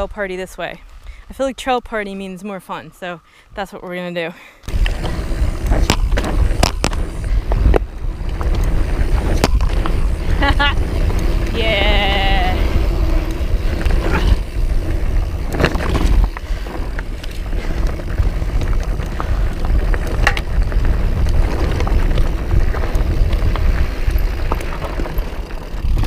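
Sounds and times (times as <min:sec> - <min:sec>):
wind and tyres rumbling: 0:00.0 - 0:26.0
bike rattling over rocks: 0:04.7 - 0:26.0.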